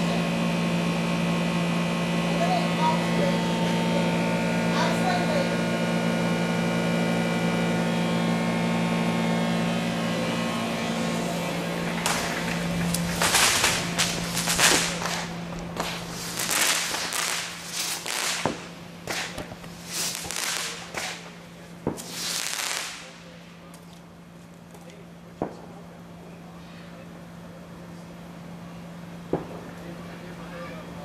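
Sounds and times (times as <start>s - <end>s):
gas generator humming: 0.0s - 31.0s
sharp crackling bursts: 10.1s - 23.6s.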